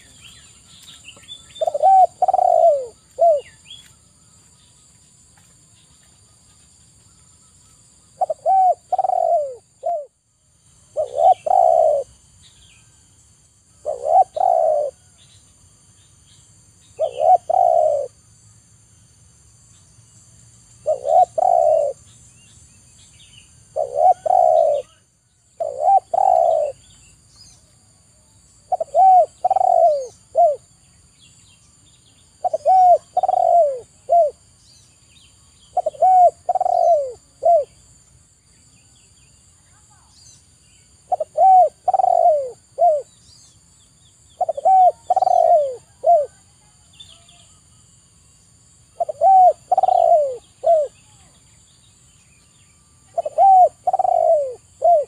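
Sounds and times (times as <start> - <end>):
faint high-pitched hum: 0.0 - 55.0
dove cooing: 1.4 - 3.7, 8.1 - 10.2, 10.9 - 12.2, 13.8 - 15.1, 17.0 - 18.2, 20.8 - 22.0, 23.7 - 25.0, 25.6 - 26.9, 28.7 - 30.7, 32.4 - 34.4, 35.7 - 37.8, 41.0 - 43.1, 44.4 - 46.8, 49.0 - 51.3, 53.1 - 55.0.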